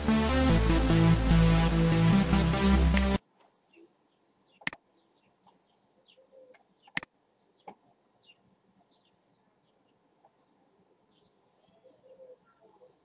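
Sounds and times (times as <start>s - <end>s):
birds chirping: 3.5s - 13.0s
computer mouse clicks: 6.5s - 7.1s.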